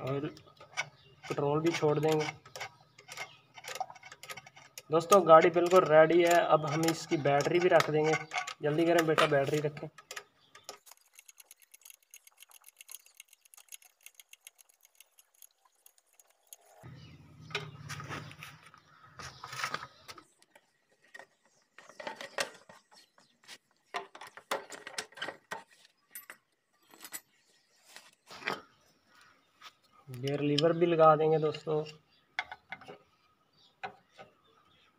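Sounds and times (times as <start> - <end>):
metal and plastic parts clinking: 0.0 - 16.8
rapid light ticking: 10.8 - 16.9.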